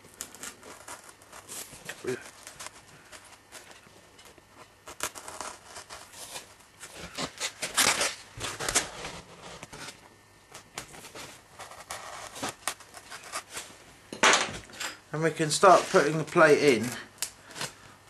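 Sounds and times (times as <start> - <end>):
knife scratching through foam: 0.3 - 3.7, 4.8 - 10.0, 10.9 - 13.7, 15.6 - 16.3.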